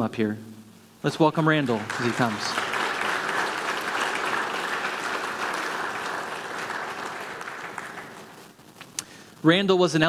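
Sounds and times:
congregation applauding: 1.4 - 8.8.

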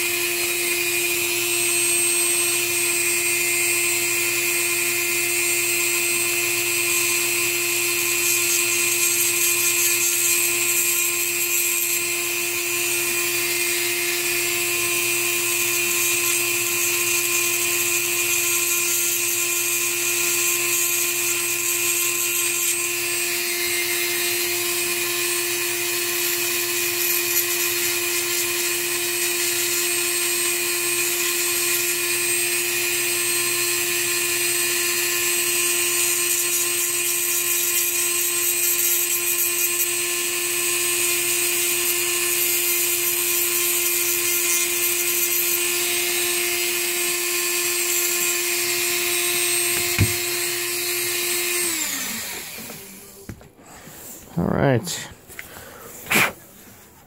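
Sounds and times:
rotary tool grinding: 0.0 - 53.3.

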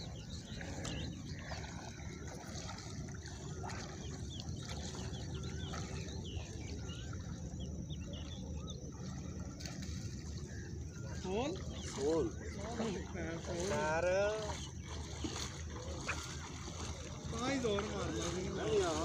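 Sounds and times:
water lapping: 0.0 - 19.0.

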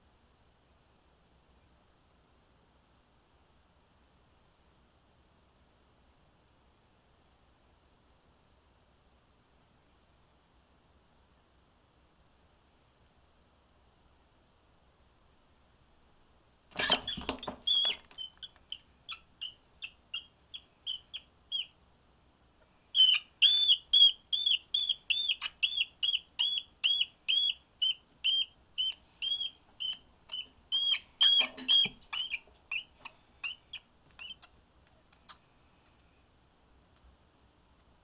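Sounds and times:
rat squeaking in distress: 16.8 - 21.8, 23.0 - 34.6.

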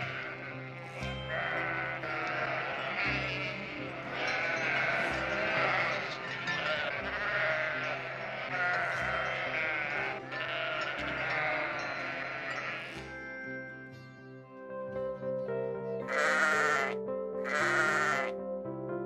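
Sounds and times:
sheep bleating: 0.0 - 13.2, 16.1 - 18.3
background music: 0.0 - 19.0.

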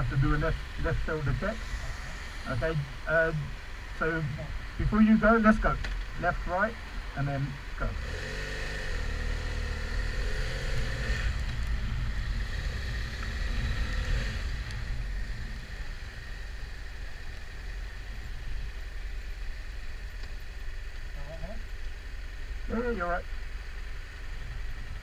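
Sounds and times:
motorcycle engine accelerating: 7.7 - 25.0.

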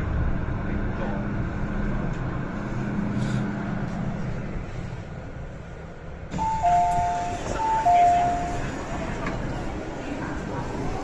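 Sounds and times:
electric train braking to a stop: 6.3 - 9.4.

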